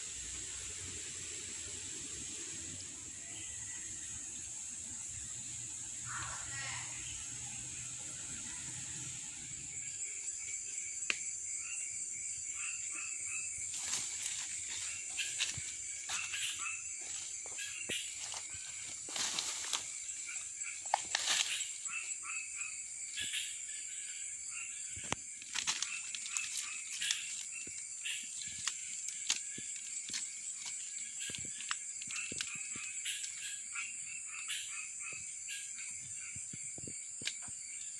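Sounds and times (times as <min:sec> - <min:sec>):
high insect drone: 0:00.0 - 0:37.9
frogs calling: 0:04.8 - 0:37.9
rustling through dry fronds: 0:12.9 - 0:23.4, 0:24.9 - 0:33.6.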